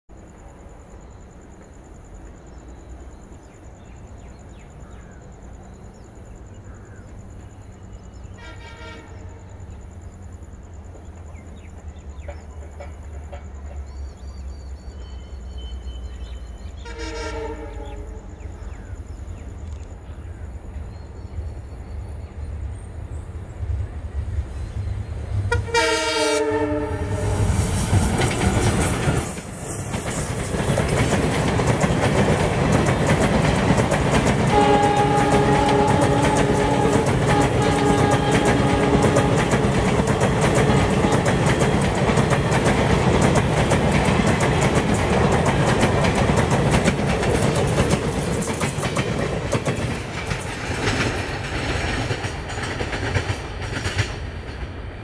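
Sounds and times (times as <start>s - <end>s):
train horn blasts: 8.3s - 9.5s, 16.8s - 18.2s, 25.5s - 27.6s, 34.5s - 39.9s
locomotive engine rumbling: 23.4s - 55.0s
wheel-and-rail clatter: 27.7s - 54.7s.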